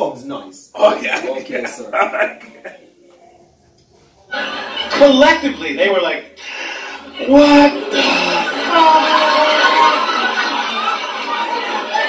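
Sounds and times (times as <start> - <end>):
audience laughing: 1.2 - 2.9, 4.2 - 5.8, 6.4 - 12.0.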